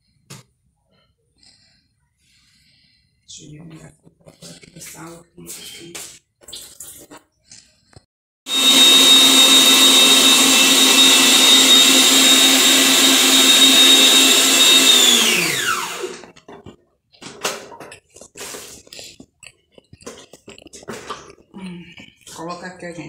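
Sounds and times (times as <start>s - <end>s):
stand mixer motor whining: 8.5s - 16.4s.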